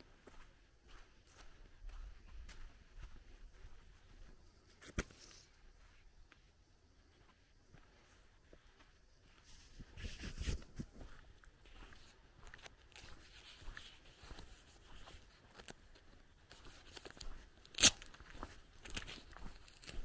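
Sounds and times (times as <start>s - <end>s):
footsteps crunching on gravel: 9.4s - 20.0s.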